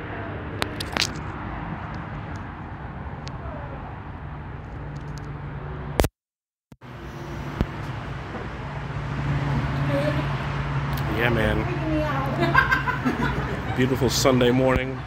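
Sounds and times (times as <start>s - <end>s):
highway traffic rumble: 0.0s - 6.0s, 6.8s - 15.0s.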